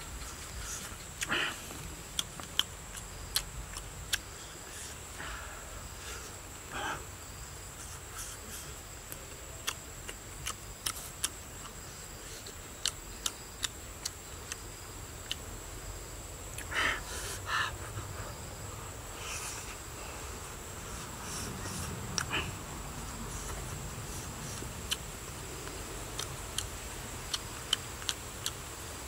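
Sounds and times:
lip smacks while chewing: 0.8 - 4.3, 9.1 - 11.8, 23.4 - 26.7, 27.3 - 28.6.

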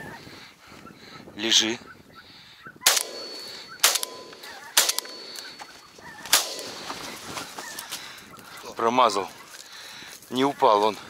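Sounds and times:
shotgun shots with echo: 2.8 - 5.6, 6.3 - 6.9.

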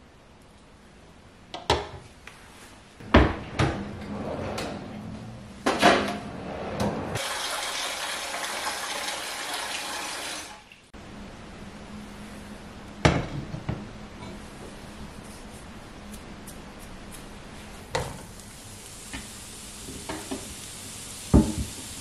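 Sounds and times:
tap water running into pot: 7.2 - 10.7, 19.0 - 20.6
kitchenware knocks and clatter: 13.0 - 14.4.

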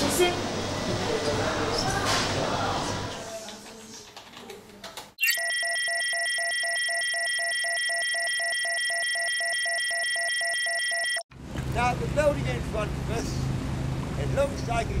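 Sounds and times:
rapid electronic beeping: 5.2 - 11.2
steady high electronic tones: 5.2 - 11.2.

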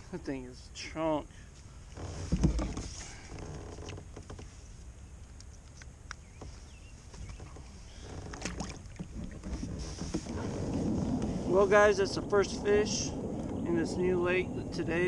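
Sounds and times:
low rumble: 9.1 - 15.0.

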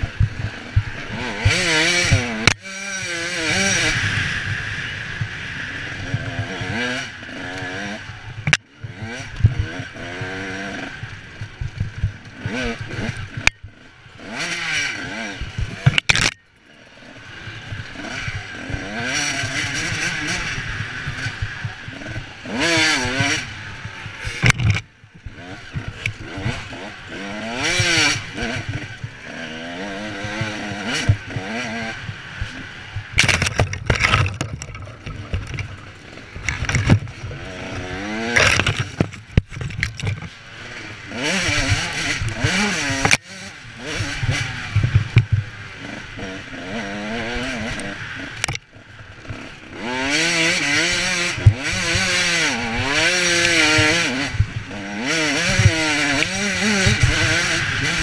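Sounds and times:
off-road engine revving: 0.0 - 58.0
knocks and rattles: 24.3 - 24.8, 32.4 - 37.3, 38.2 - 40.4.

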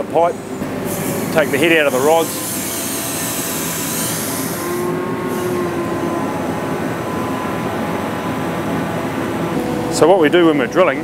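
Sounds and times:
drill rig machinery running: 0.0 - 11.0.

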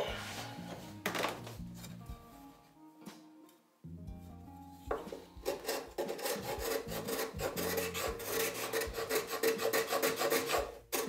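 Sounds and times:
hand scraper scraping wood: 5.1 - 11.0.

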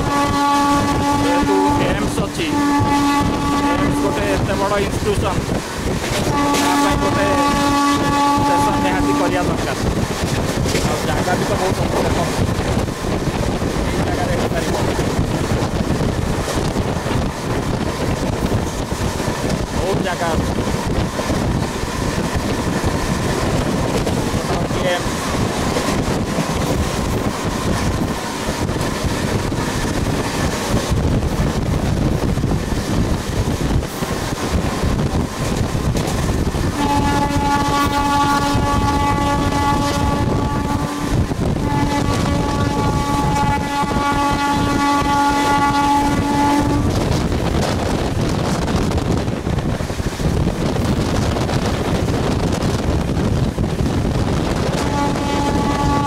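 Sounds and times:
train horn blasts: 0.0 - 5.3, 6.0 - 12.1, 36.7 - 47.9, 54.6 - 56.0
train rumbling: 0.0 - 56.0
wind on microphone: 0.0 - 56.0.

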